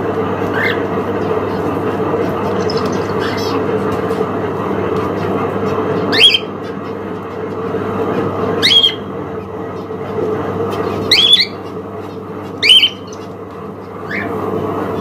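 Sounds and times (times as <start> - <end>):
steady background hum: 0.0 - 15.0
cockatiel shrill calls: 11.1 - 11.6, 12.6 - 13.2.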